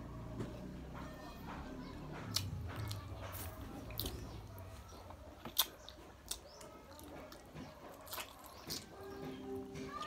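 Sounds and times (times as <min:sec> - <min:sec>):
person chewing food: 0:02.1 - 0:10.0.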